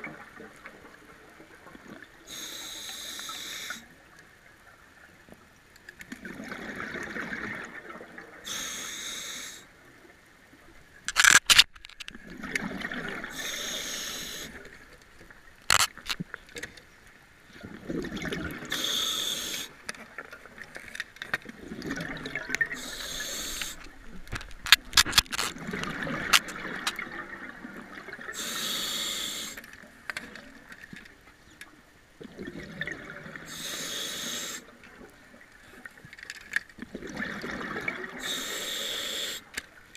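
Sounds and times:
diver breathing through regulator: 2.3 - 3.8, 8.5 - 9.7, 13.3 - 14.6, 18.7 - 19.8, 22.8 - 23.8, 28.4 - 29.6, 33.5 - 34.7, 38.2 - 39.5
exhaled bubbles: 6.2 - 8.6, 12.2 - 14.7, 17.6 - 19.6, 21.5 - 24.2, 25.5 - 29.5, 32.2 - 34.7, 36.8 - 38.5
gear clicks and knocks: 11.1 - 12.2, 24.2 - 25.6.

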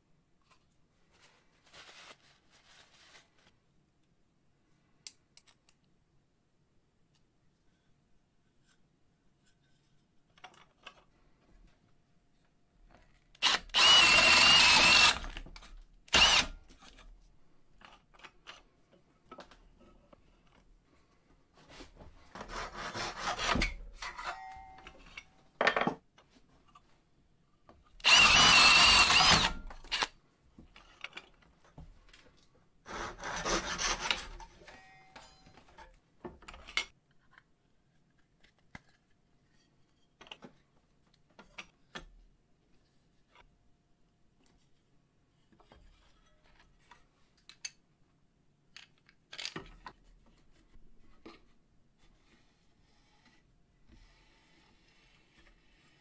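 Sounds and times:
cordless drill boring into wood: 13.4 - 15.4, 16.1 - 16.6, 28.0 - 30.1.

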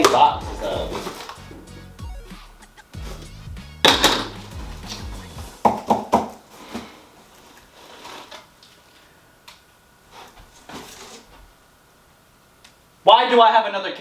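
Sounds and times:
rustling in cardboard box: 0.6 - 1.4, 6.5 - 9.0.

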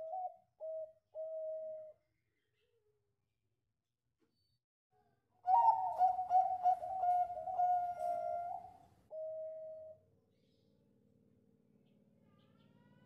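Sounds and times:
dove cooing song: 0.0 - 2.0, 5.4 - 10.0.

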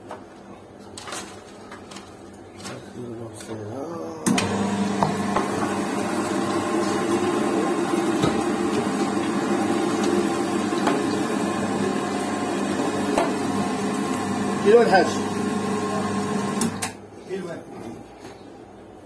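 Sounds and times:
electric meat grinder humming: 4.3 - 16.9.

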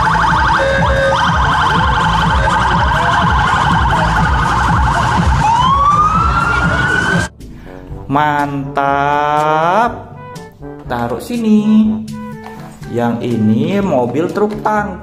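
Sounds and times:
police siren: 0.0 - 7.3
street traffic rumble: 0.0 - 7.3.

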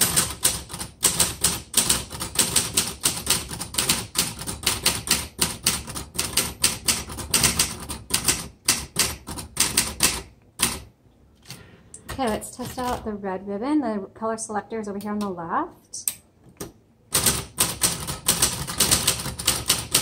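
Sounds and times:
manual typewriter typing: 0.0 - 13.0, 17.1 - 20.0.

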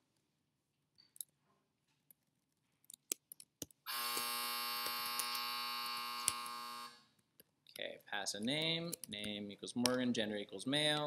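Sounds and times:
loud electric buzz: 3.9 - 7.0
keyboard and mouse clicks: 8.4 - 10.0.

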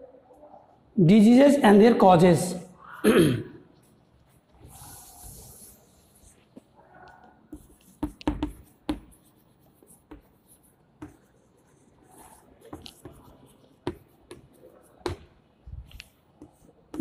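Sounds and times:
chalk scratching on chalkboard: 3.8 - 6.7, 7.5 - 15.4, 16.0 - 17.0
chalk tapping on board: 7.5 - 15.4, 16.0 - 17.0.

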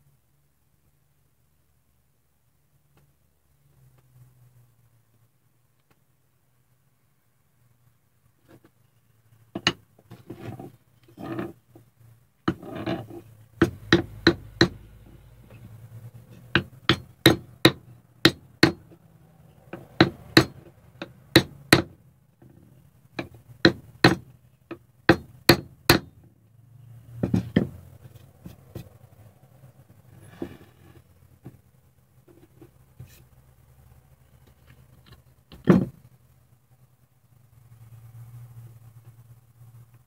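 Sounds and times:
soft handling of block: 8.4 - 13.9, 26.9 - 29.2, 29.8 - 33.5, 34.2 - 36.2
hammer tapping wooden block: 13.6 - 14.8, 16.4 - 18.9, 19.7 - 22.0, 23.2 - 24.3, 25.1 - 26.1.

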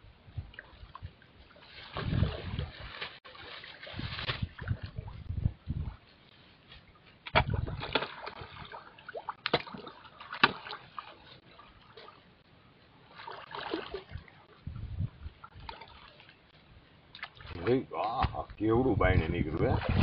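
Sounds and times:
fish splashing at water surface: 7.3 - 12.2, 13.1 - 14.3.

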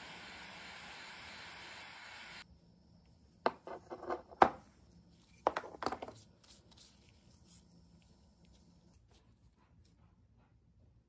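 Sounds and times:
steady hiss: 0.0 - 3.3
objects tapping and scraping on workbench: 3.5 - 4.6, 5.4 - 6.2.

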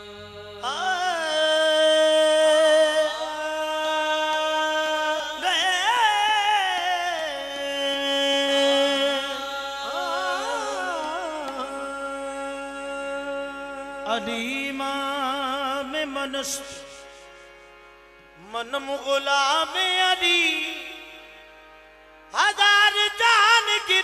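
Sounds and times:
harmonium drone: 0.0 - 24.0.

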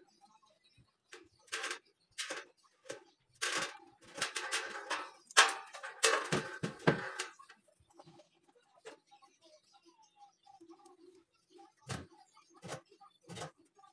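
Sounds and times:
steel profiles clattering and scraping: 1.4 - 7.5.

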